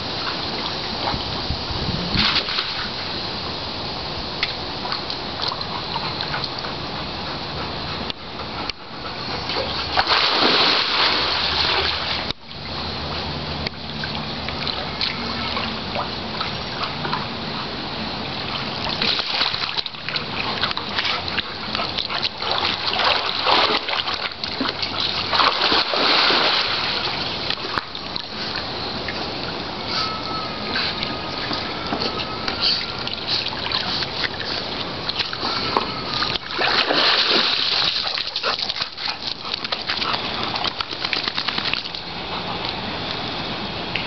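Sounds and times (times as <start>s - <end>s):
dog splashing in water: 9.5s - 12.3s, 18.4s - 28.6s, 30.9s - 42.1s.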